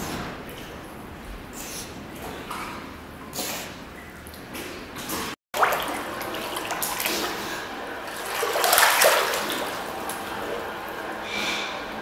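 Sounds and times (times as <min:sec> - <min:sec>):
water splashing in a pool: 0:02.2 - 0:11.1.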